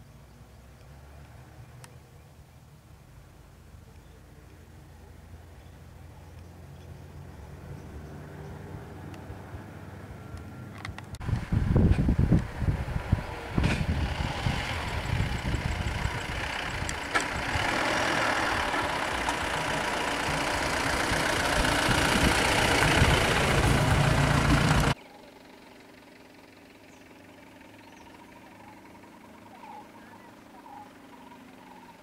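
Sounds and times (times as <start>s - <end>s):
vehicle engine idling: 0.0s - 32.0s
wind rumble on microphone: 11.2s - 17.7s, 21.1s - 24.9s.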